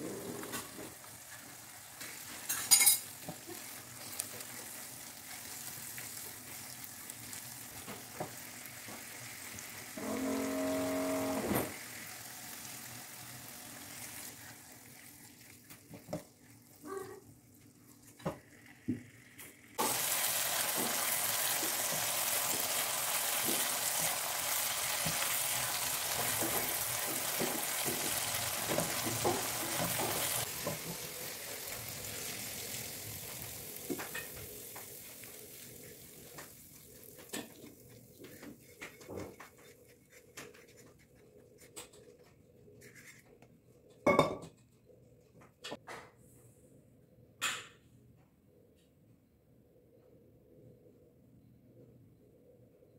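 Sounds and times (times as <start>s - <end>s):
loud sizzle: 0.0s - 16.9s, 17.5s - 38.8s
sambal frying in a pan: 0.2s - 40.6s
humming tone: 10.0s - 11.6s
spatula scraping a pan: 36.8s - 42.0s.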